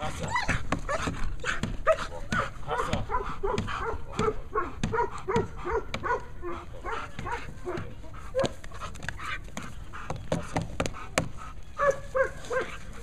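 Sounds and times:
dog barking: 0.9s - 8.6s, 11.8s - 12.9s.

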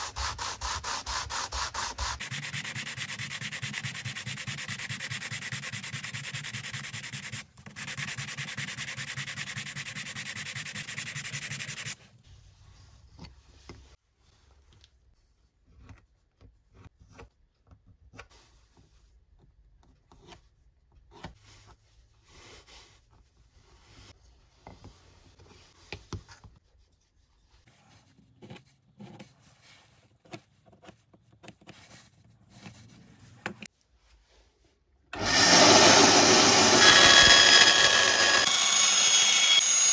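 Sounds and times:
pencil scratching on card: 0.0s - 12.0s
wood rubbing on sandpaper: 0.0s - 12.0s, 35.2s - 39.6s.

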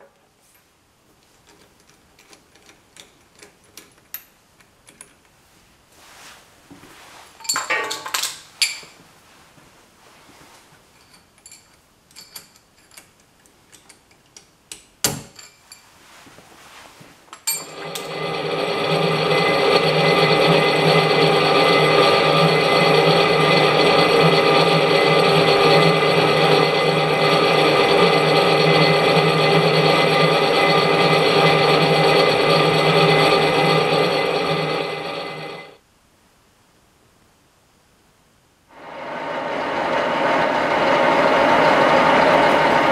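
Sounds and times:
drill press whining: 17.5s - 35.8s, 38.8s - 42.9s.

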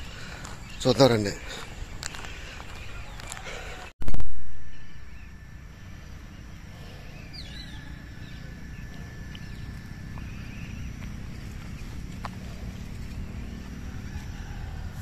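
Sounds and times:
steady low rumble: 4.1s - 15.0s.

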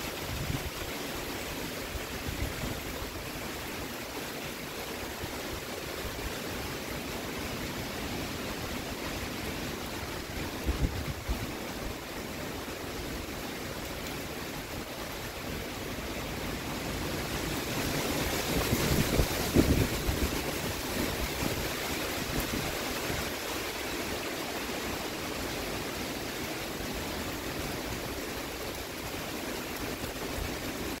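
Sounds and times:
heavy rain: 0.0s - 31.0s
wind through trees: 0.0s - 31.0s
wind thumps on microphone: 18.5s - 21.6s.

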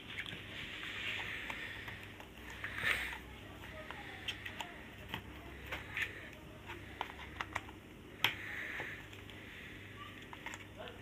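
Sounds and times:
plastic parts clicking and knocking: 1.2s - 9.4s.

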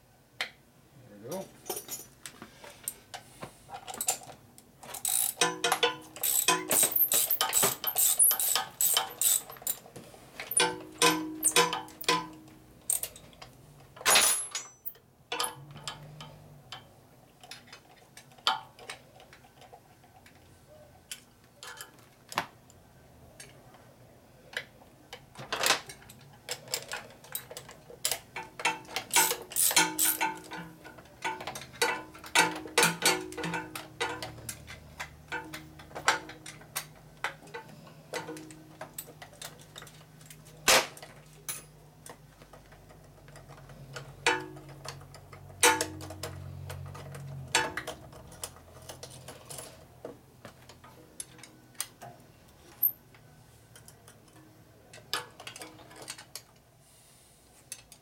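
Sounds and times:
metal tools clinking: 1.3s - 2.2s, 3.8s - 9.8s, 10.4s - 13.4s, 14.0s - 16.3s, 25.6s - 36.9s.

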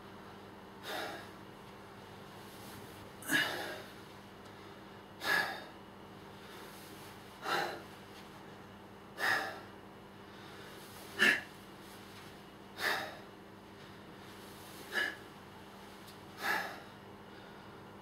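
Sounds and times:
man breathing hard: 0.8s - 1.4s, 3.2s - 8.0s, 9.1s - 11.6s, 12.7s - 15.4s, 16.3s - 18.0s.

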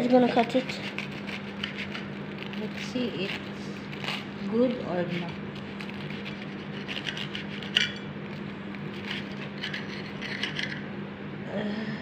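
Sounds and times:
knife sawing through toast crust: 0.0s - 10.8s.

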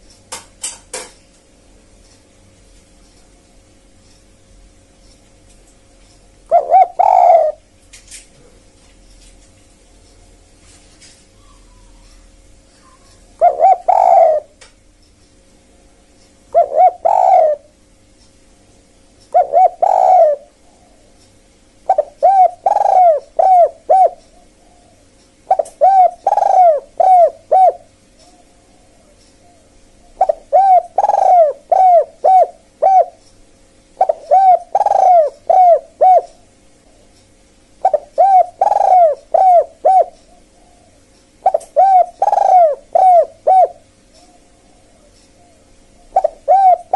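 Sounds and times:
faint steady hum: 0.0s - 46.9s
dove cooing: 6.5s - 7.7s, 11.4s - 14.6s, 16.5s - 17.8s, 19.3s - 21.2s, 21.8s - 33.2s, 34.0s - 37.1s, 37.8s - 46.9s.

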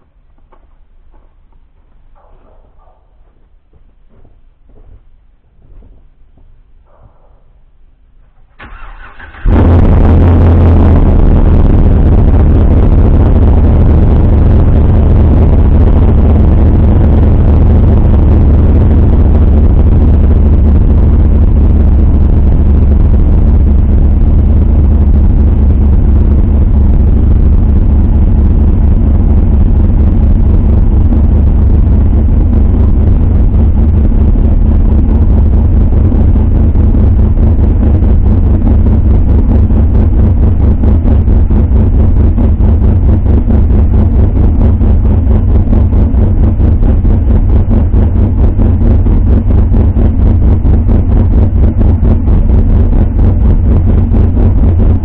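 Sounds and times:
truck engine idling loudly: 8.6s - 55.0s.

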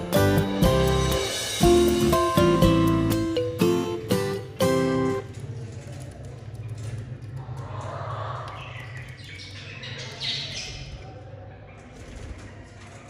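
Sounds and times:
low hum: 6.8s - 9.2s
budgerigars chirping and squawking: 8.5s - 11.0s.

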